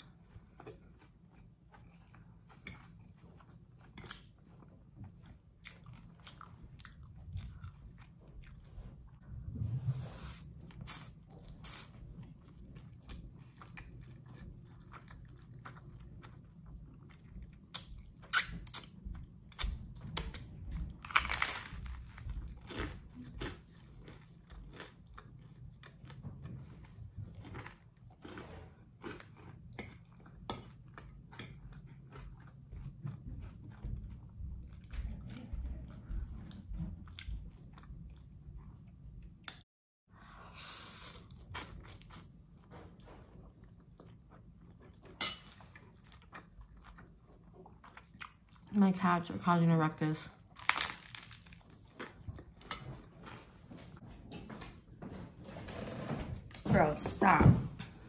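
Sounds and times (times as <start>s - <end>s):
person chewing: 0.0s - 9.2s, 10.2s - 38.8s, 41.0s - 48.7s, 50.4s - 54.0s
crunchy bites: 21.0s - 23.6s, 50.5s - 51.8s.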